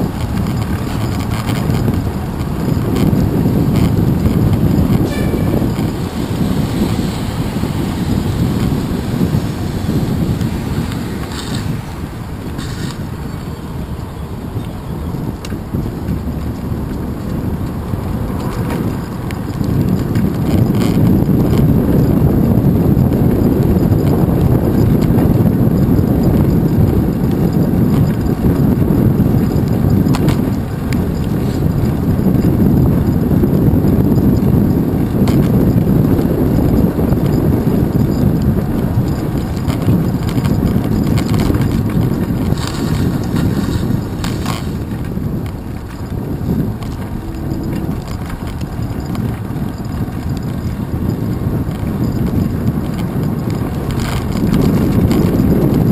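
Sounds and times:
tyre rumble on wet path: 0.0 - 22.6, 37.4 - 55.9
wind rushing over microphone: 0.0 - 55.9
bike knocking over bumps: 24.0 - 55.9.

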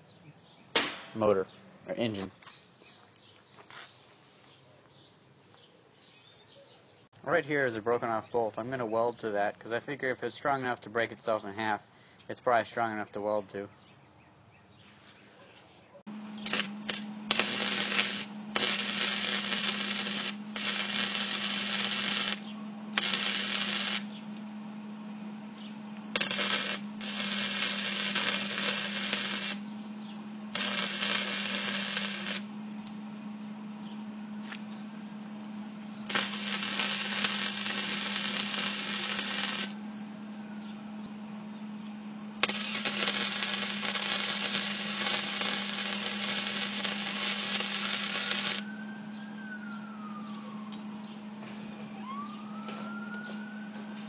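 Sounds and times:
steady low hum: 16.1 - 54.0
welding arc crackling: 16.3 - 24.5, 25.9 - 29.7, 30.5 - 33.0, 36.0 - 39.8, 42.4 - 48.7.

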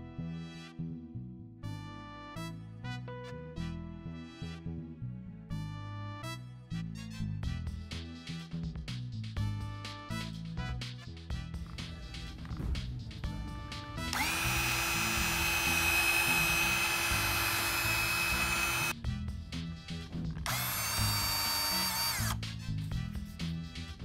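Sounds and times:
cordless drill whining: 14.1 - 19.0, 20.5 - 22.4.

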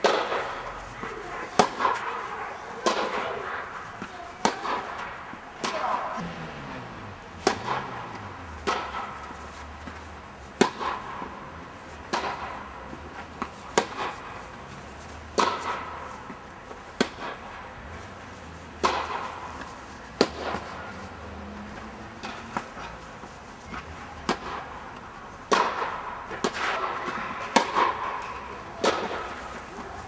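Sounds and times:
tennis ball struck by rackets: 0.0 - 6.4, 7.4 - 14.5, 15.3 - 17.6, 18.8 - 21.0, 22.2 - 30.0
tennis ball bouncing on court: 7.4 - 14.5, 15.3 - 17.4, 18.8 - 20.8, 23.7 - 24.8, 25.5 - 29.8.

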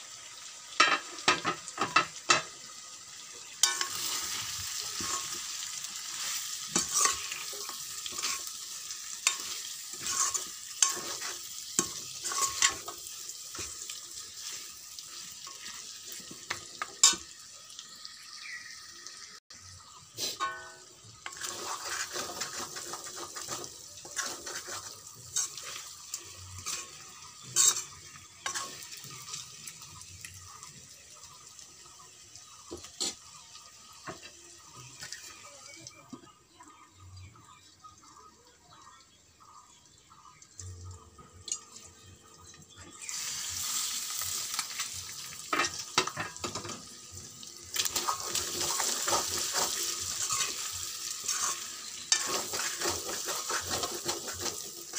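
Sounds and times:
meat sizzling in a pan: 0.0 - 36.1, 41.3 - 54.9
metal ladle scraping a pan: 3.6 - 17.3, 20.2 - 29.5, 47.8 - 54.9.

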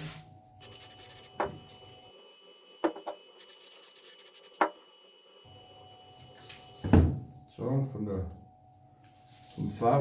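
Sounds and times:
faint steady high tone: 0.2 - 10.0
hands rubbing small items: 3.4 - 4.6.

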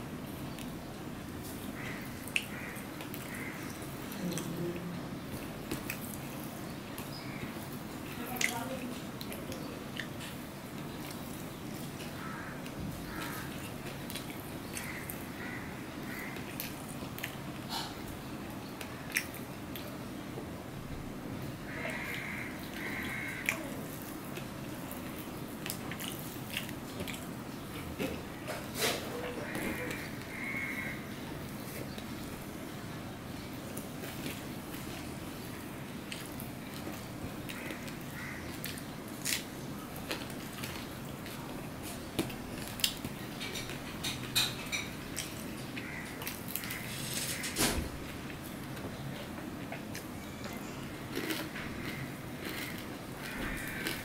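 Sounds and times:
fingers squishing rice: 50.8 - 54.0.

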